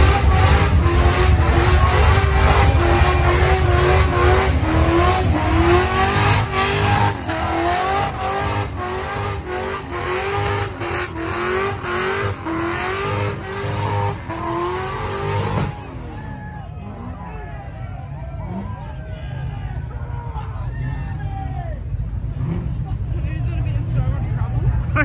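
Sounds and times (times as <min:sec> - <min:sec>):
car engine revving hard: 0:00.0 - 0:16.1, 0:22.2 - 0:22.8
tyres spinning on road: 0:00.0 - 0:25.0.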